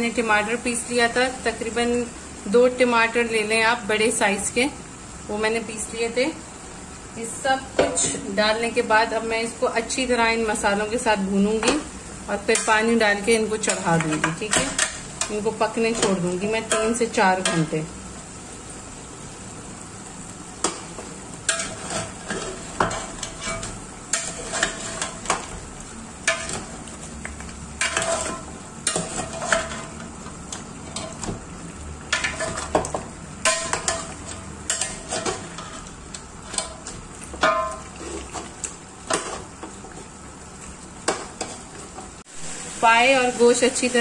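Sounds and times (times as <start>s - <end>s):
meat sizzling: 0.0s - 44.0s
spoon clinking and scraping pot: 21.5s - 25.4s, 32.1s - 35.9s.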